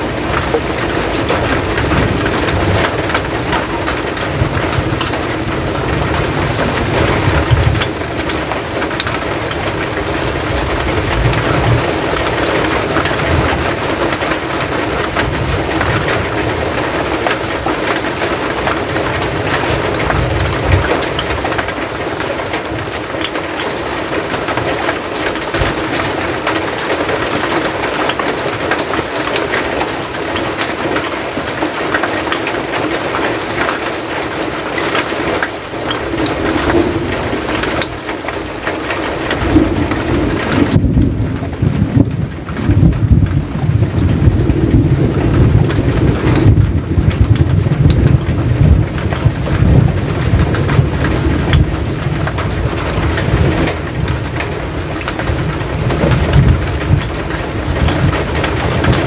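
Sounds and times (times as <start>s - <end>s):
rain on a metal roof: 0.0s - 59.0s
deep rumble: 39.4s - 59.0s.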